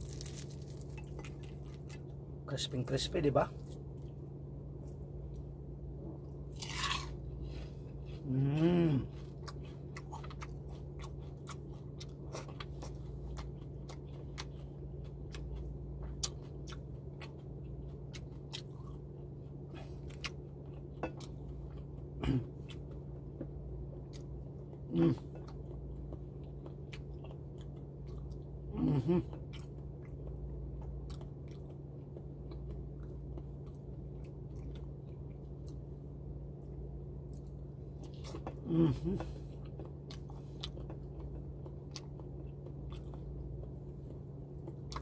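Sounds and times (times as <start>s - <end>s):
crispy food crunching: 0.0s - 4.2s, 6.4s - 23.1s
person humming mm: 8.2s - 9.2s, 22.2s - 22.5s, 24.9s - 25.3s, 28.7s - 29.4s, 38.6s - 39.4s.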